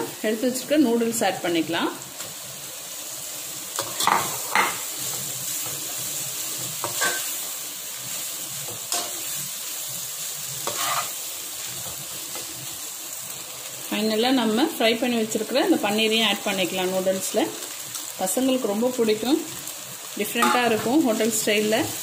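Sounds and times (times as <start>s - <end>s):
noodles sizzling in hot oil: 0.0s - 22.0s
spatula striking pan: 3.8s - 4.9s, 6.8s - 7.4s, 20.4s - 20.8s.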